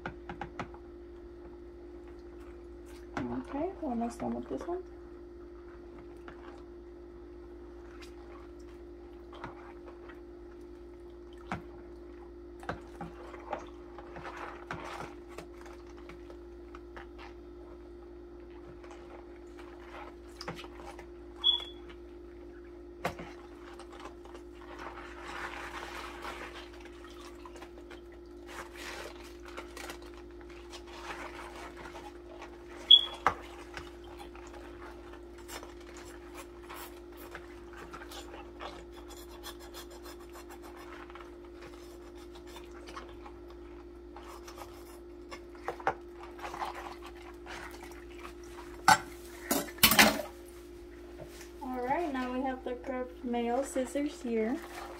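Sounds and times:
steady low hum: 0:00.0 - 0:54.9
scrubbing in soapy water: 0:10.9 - 0:17.8, 0:18.4 - 0:49.4, 0:50.2 - 0:54.9
short high squeaks: 0:21.4 - 0:21.8, 0:32.9 - 0:33.2.

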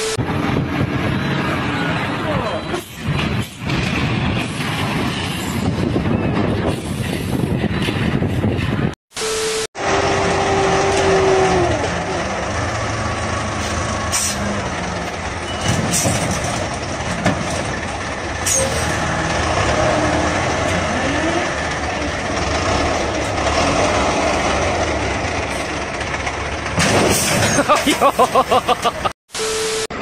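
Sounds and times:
diesel engines running under load: 0:00.0 - 0:30.0
machinery knocks and clanks: 0:10.7 - 0:28.0.

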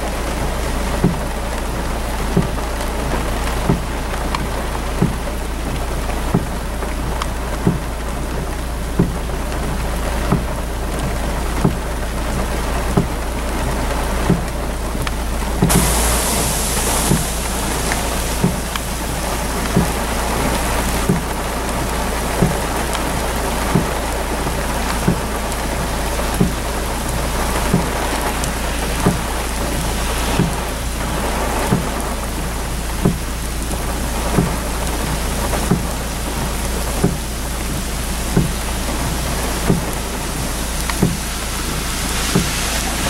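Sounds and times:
heavy rain on a car: 0:00.0 - 0:43.0
soft thump: 0:41.0 - 0:41.2.

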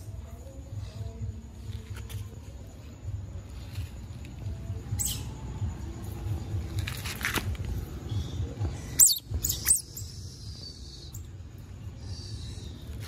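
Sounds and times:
baby otter chirping: 0:08.9 - 0:11.2.

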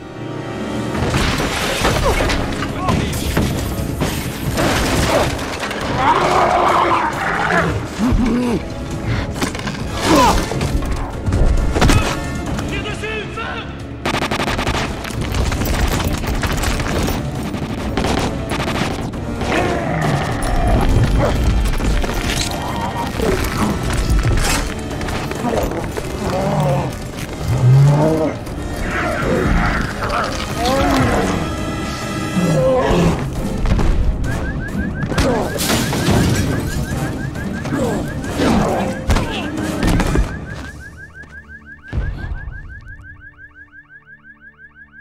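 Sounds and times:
orchestral film score: 0:00.0 - 0:44.3
rapid handgun fire: 0:14.0 - 0:15.0
car alarm whooping: 0:34.2 - 0:45.0.

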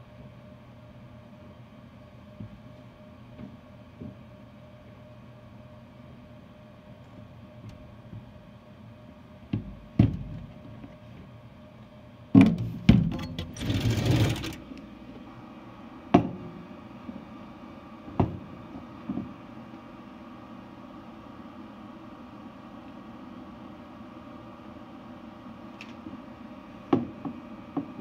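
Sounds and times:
sharp knocks and bumps: 0:09.5 - 0:11.0, 0:12.4 - 0:14.6.

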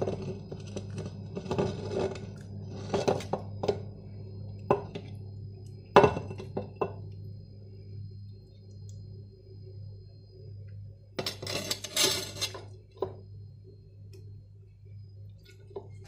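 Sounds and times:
spatula scraping bowl: 0:00.0 - 0:03.8, 0:11.3 - 0:12.7
low hum: 0:00.0 - 0:16.0
glass bowl knocking on clay pot: 0:06.0 - 0:07.0.

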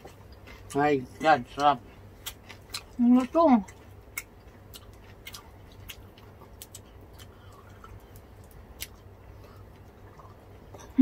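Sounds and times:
low steady hum: 0:00.0 - 0:11.0
people chewing crispy food: 0:00.0 - 0:11.0.

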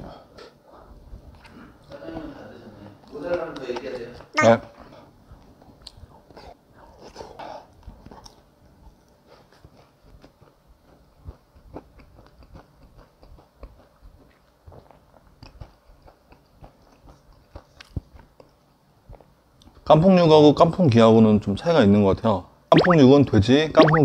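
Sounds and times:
wet chewing: 0:09.5 - 0:19.3.

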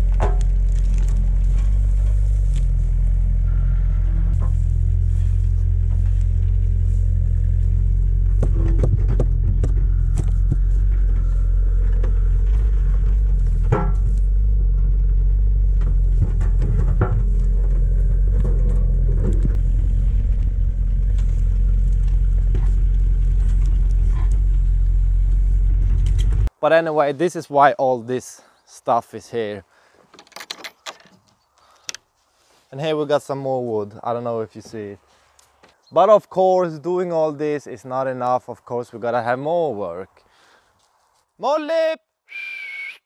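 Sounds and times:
excavator diesel engine running: 0:00.0 - 0:26.5.

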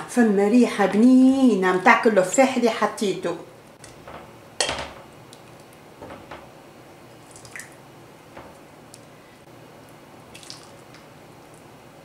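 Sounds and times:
soup pouring and dripping: 0:07.1 - 0:07.8, 0:09.8 - 0:11.7.

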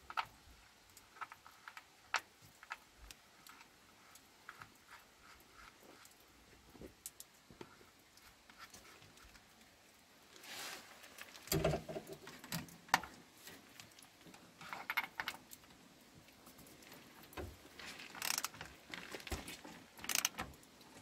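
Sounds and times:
ratchet clicking rapidly: 0:18.2 - 0:18.5, 0:20.0 - 0:20.3.

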